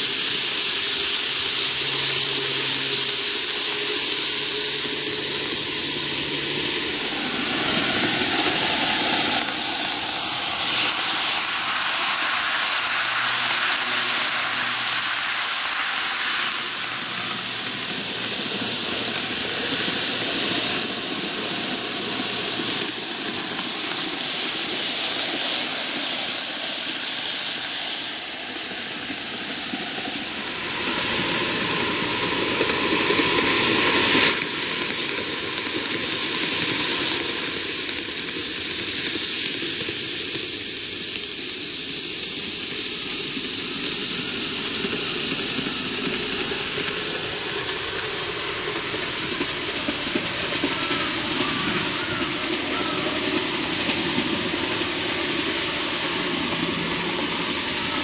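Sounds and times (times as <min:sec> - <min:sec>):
model train running on track: 0:00.0 - 0:58.0.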